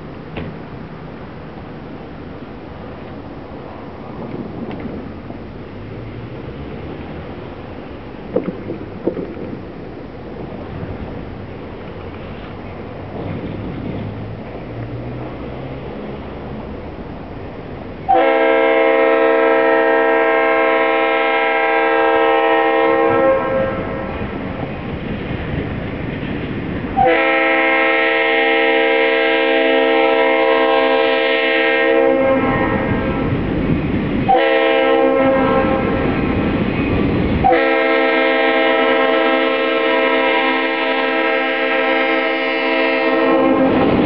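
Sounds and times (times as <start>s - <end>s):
train rumble: 0.0s - 44.0s
locomotive air horn blasts: 18.1s - 24.1s, 27.0s - 33.3s, 34.3s - 36.0s, 37.4s - 44.0s.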